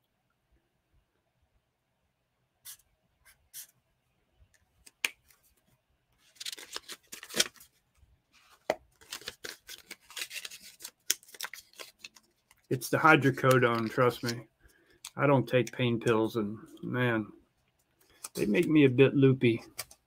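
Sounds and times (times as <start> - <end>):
paper rustling and scratching: 6.2 - 7.7, 8.4 - 12.6, 13.2 - 14.4.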